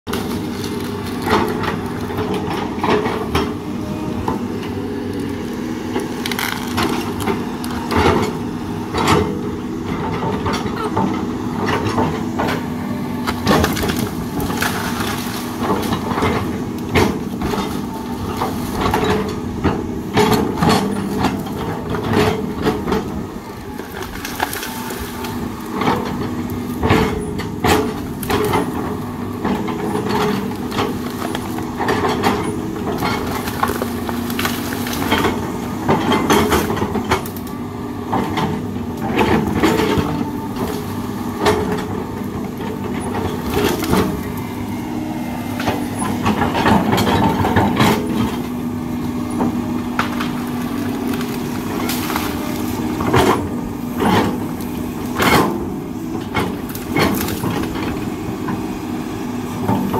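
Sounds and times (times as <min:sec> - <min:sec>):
excavator diesel engine running: 0:00.1 - 0:59.9
wood cracking and snapping: 0:06.0 - 0:07.8, 0:13.2 - 0:16.2, 0:23.6 - 0:26.1, 0:33.0 - 0:35.5.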